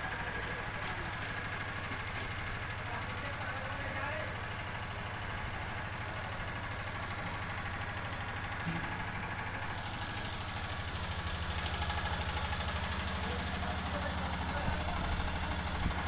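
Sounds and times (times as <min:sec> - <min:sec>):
engine with low pulsing beat: 0:04.7 - 0:16.0.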